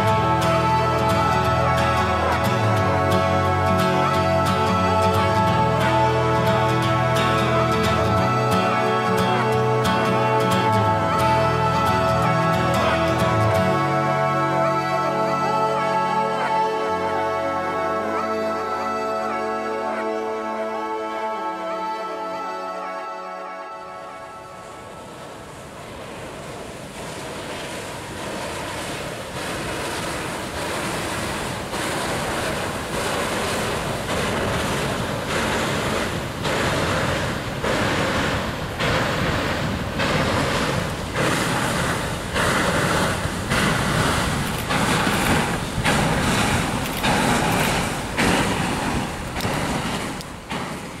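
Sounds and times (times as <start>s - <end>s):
wind on microphone: 0.0s - 16.7s, 24.6s - 51.0s
water splashing against embankment: 0.0s - 19.8s, 24.8s - 51.0s.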